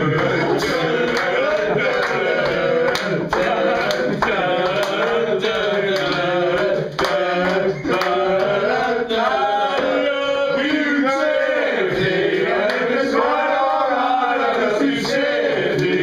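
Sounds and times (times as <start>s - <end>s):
hand claps: 0.0s - 10.1s, 11.9s - 13.8s, 14.5s - 16.0s
men singing together: 0.0s - 16.0s.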